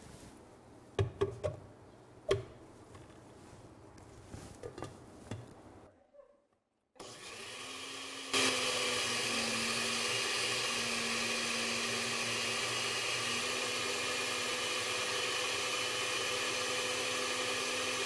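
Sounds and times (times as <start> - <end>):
blender grinding: 7.0 - 18.0.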